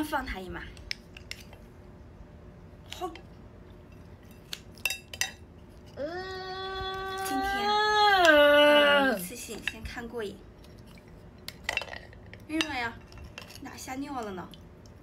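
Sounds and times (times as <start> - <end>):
whining vocal cry: 6.0 - 9.3.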